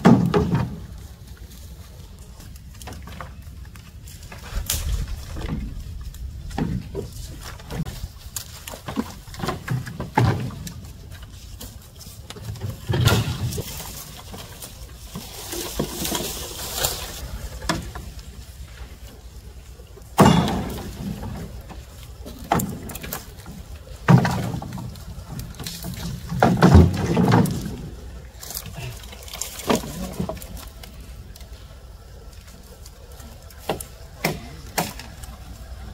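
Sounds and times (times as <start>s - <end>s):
knocks and thuds: 0.0s - 0.9s, 20.2s - 21.7s
rustling: 0.0s - 35.9s.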